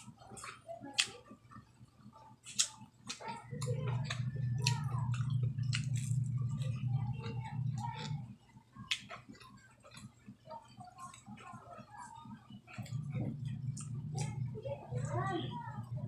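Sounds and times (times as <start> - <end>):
chewing with mouth clicks: 0.0 - 16.0
low hum: 3.1 - 9.0, 12.4 - 16.0.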